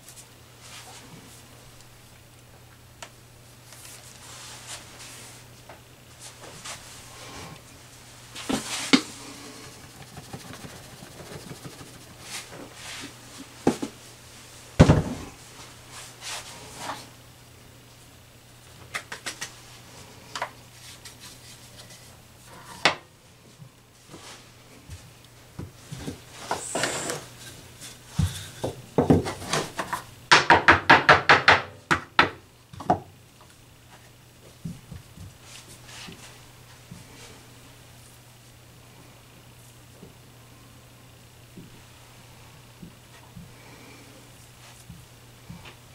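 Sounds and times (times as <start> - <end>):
rapid taps: 9.8 - 12.2
pie press and rolling pin knocking: 30.3 - 33.1.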